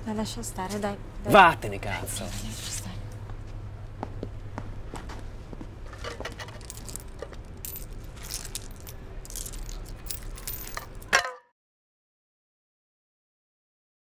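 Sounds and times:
low steady hum: 0.0s - 11.2s
small objects clinking on pavement: 5.9s - 11.3s.

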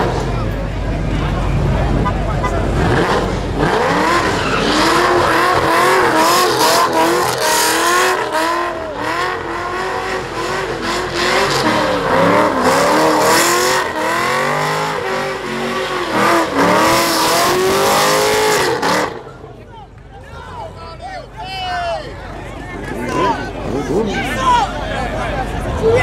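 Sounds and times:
tyres squealing on asphalt: 0.0s - 26.0s
car engine revving high: 1.8s - 19.4s.

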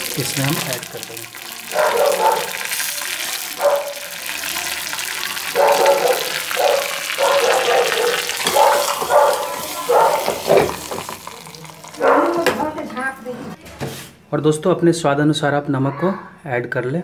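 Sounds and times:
chutney being stirred: 0.0s - 13.2s
hot oil sizzling: 0.0s - 13.3s.

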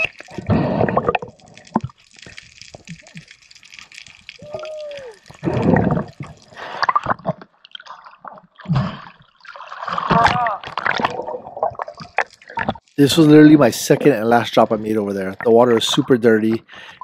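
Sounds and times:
bubbling and gurgling water: 0.0s - 17.0s
muffled water rushes: 4.1s - 7.4s.

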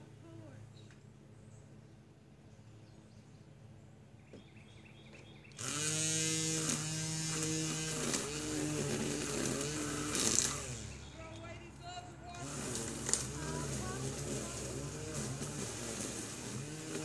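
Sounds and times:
string trimmer engine running: 5.5s - 17.0s.

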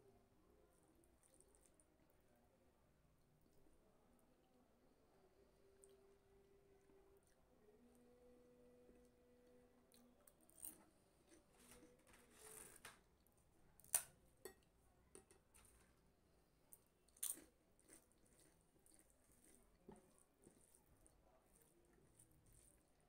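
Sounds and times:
soft chewing: 0.6s - 2.4s, 5.4s - 23.0s
crisp cracker crunching: 17.1s - 20.8s.

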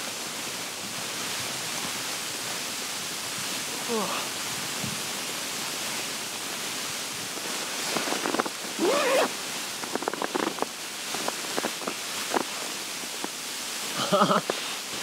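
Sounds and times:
steady wind-like hiss: 0.0s - 15.0s.

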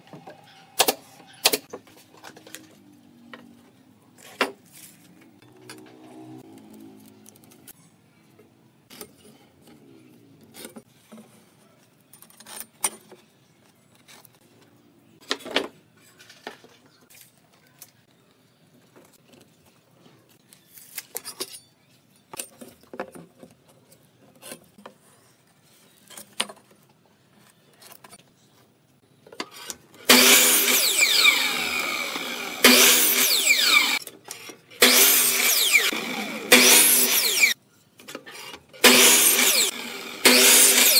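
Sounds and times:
miter saw cutting wood: 30.0s - 34.0s, 34.8s - 37.6s, 38.8s - 40.9s.

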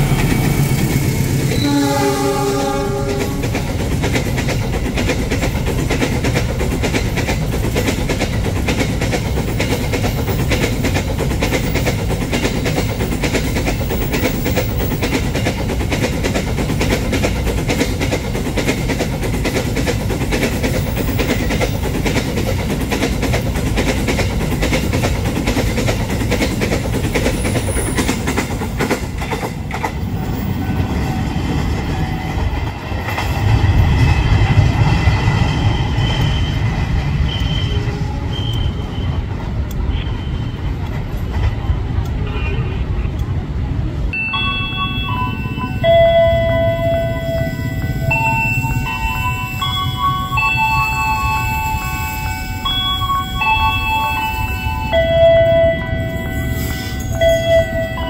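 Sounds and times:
train wheels clattering over rail joints: 0.0s - 40.0s
steady ringing tones: 44.2s - 58.0s.

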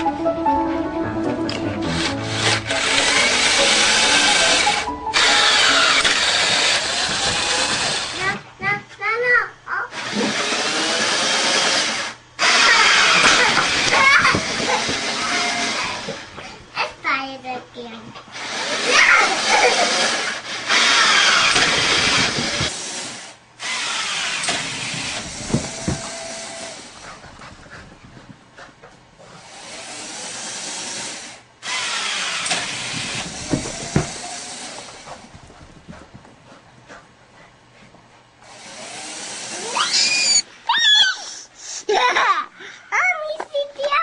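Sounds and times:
small electric motor whirring: 2.0s - 8.4s, 9.9s - 16.3s, 18.3s - 27.0s, 29.4s - 35.2s, 38.4s - 40.5s
thumps: 32.5s - 36.6s.

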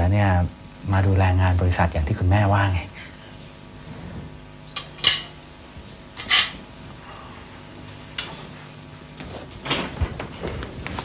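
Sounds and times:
low steady hum: 0.0s - 11.0s
cutlery clinking on china: 4.8s - 5.4s, 6.2s - 6.6s.

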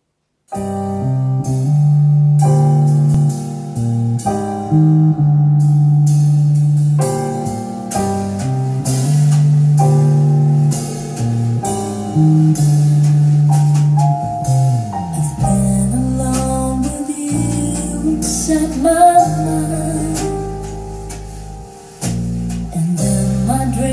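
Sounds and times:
deep bass line: 0.6s - 23.9s
drum hits: 6.0s - 23.9s.

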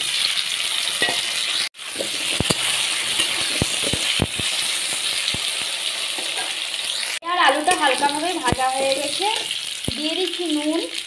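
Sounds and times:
vegetables sizzling in hot oil: 0.0s - 11.0s
metal spatula scraping pan: 1.0s - 5.6s, 6.2s - 7.0s.

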